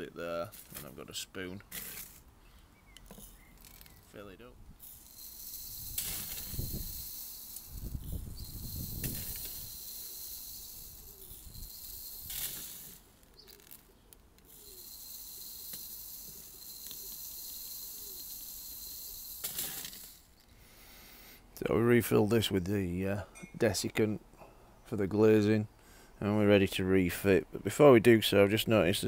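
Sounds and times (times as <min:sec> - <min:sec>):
beads trickling through funnel: 0:04.8 - 0:20.5.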